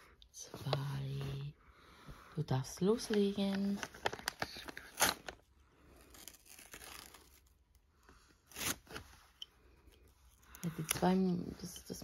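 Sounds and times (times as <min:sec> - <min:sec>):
paper tearing and rustling: 0:03.8 - 0:07.6, 0:08.5 - 0:09.2.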